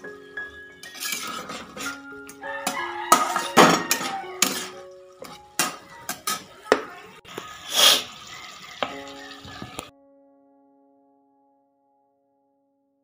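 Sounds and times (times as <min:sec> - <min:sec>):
soft background music: 0:00.0 - 0:12.6
metal spatula scraping pan: 0:00.5 - 0:06.8
oil hissing: 0:07.3 - 0:09.8.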